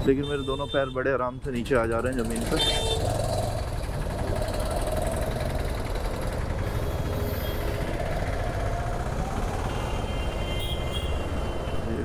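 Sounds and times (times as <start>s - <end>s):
motorcycle engine running: 1.8s - 9.8s.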